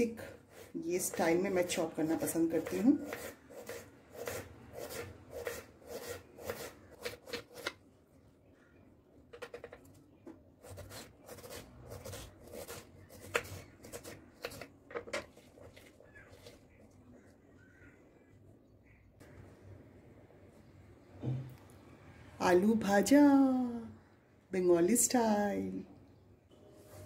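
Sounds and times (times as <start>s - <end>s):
knife slicing potato: 0.2s - 7.8s, 10.6s - 16.5s.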